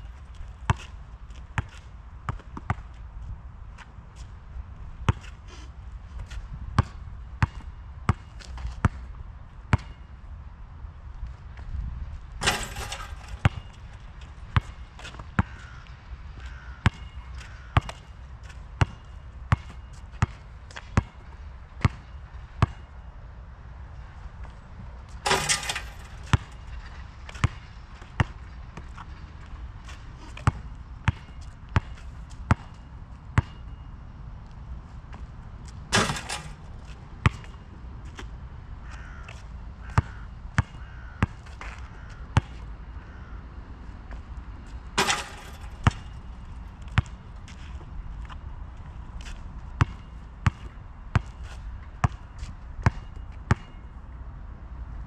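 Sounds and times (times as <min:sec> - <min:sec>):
basketball bouncing on asphalt: 0:00.2 - 0:03.1, 0:05.0 - 0:05.4, 0:06.2 - 0:10.1, 0:12.4 - 0:22.9, 0:24.4 - 0:43.4, 0:44.1 - 0:54.0
ball rattling on hoop: 0:12.4 - 0:13.9, 0:25.1 - 0:27.0, 0:35.9 - 0:37.5, 0:45.0 - 0:47.0.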